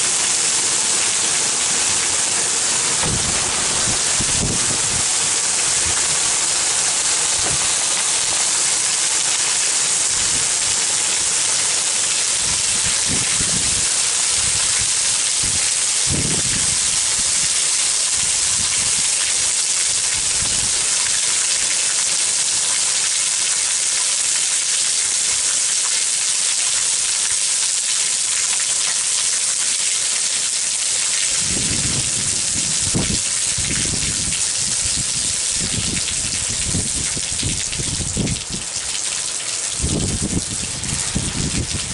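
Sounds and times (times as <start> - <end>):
heavy rain: 0.0 - 41.9
low rumbles: 1.7 - 6.3.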